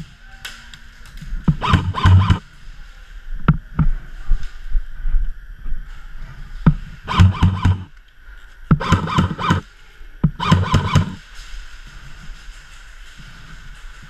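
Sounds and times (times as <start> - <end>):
airsoft rifle bursts: 1.5 - 2.4, 7.1 - 7.9, 8.7 - 9.6, 10.3 - 11.2.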